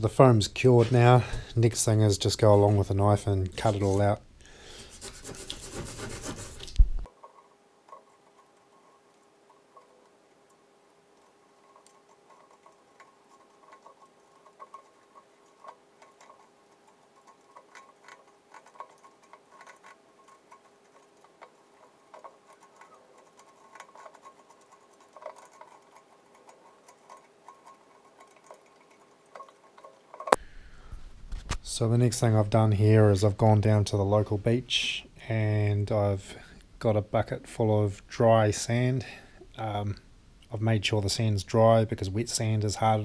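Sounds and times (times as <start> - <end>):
faint steady hum: 0.0 - 43.0
knife scratching foam: 4.8 - 6.8.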